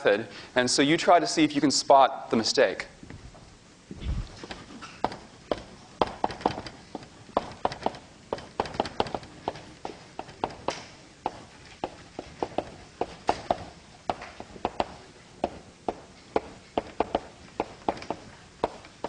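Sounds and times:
chalk tapping on blackboard: 4.4s - 19.0s.

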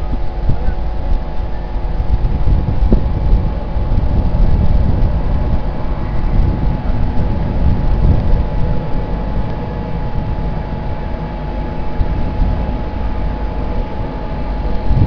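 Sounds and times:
thin steady hum: 0.0s - 15.0s
train wheels rumbling on rail: 0.0s - 15.0s.

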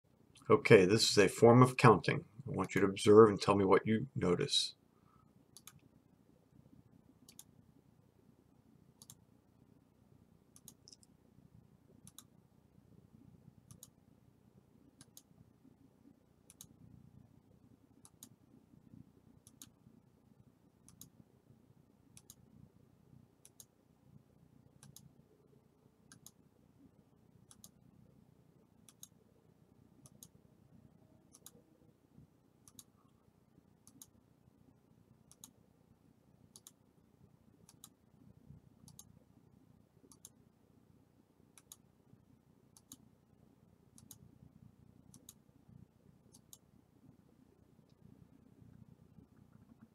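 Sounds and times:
computer mouse clicks: 5.5s - 5.9s, 7.2s - 7.5s, 9.0s - 9.2s, 10.5s - 11.2s, 12.0s - 12.3s, 13.7s - 14.0s, 15.0s - 15.3s, 16.5s - 16.8s, 18.0s - 18.4s, 19.4s - 19.8s, 20.8s - 21.2s, 22.1s - 22.4s, 23.4s - 23.8s, 24.8s - 25.1s, 26.1s - 26.4s, 27.5s - 27.8s, 28.8s - 29.2s, 30.0s - 30.4s, 31.3s - 31.6s, 32.6s - 33.1s, 33.8s - 34.2s, 35.3s - 35.6s, 36.5s - 36.8s, 37.6s - 38.0s, 38.8s - 39.1s, 40.1s - 40.4s, 41.6s - 41.8s, 42.7s - 43.0s, 43.9s - 44.2s, 45.1s - 45.4s, 46.3s - 46.7s, 48.7s - 49.9s.

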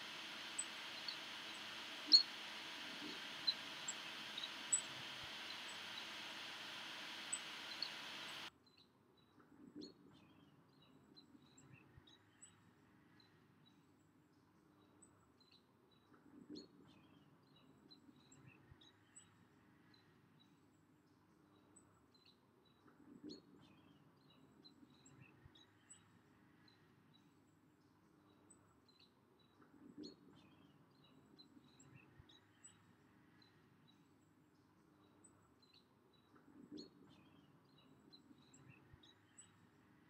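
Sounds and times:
faint bird chirps: 0.0s - 8.5s.

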